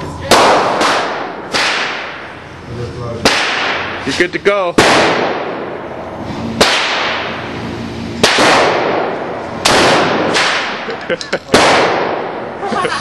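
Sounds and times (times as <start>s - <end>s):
loud gunshots echoing: 0.3s - 2.4s, 3.2s - 4.0s, 4.7s - 7.5s, 8.2s - 12.5s.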